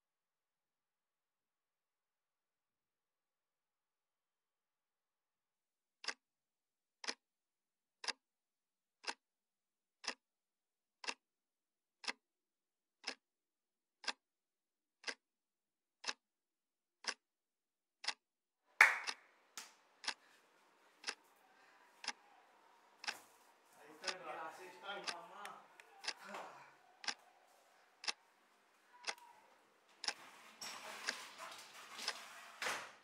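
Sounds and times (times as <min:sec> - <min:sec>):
clock ticking: 0:08.0 - 0:08.2, 0:10.0 - 0:10.2, 0:11.0 - 0:11.2, 0:12.0 - 0:12.2, 0:13.0 - 0:13.2, 0:14.0 - 0:14.2, 0:15.0 - 0:15.2, 0:16.0 - 0:16.2, 0:17.0 - 0:17.2, 0:18.0 - 0:18.2, 0:20.0 - 0:20.3, 0:20.9 - 0:32.3.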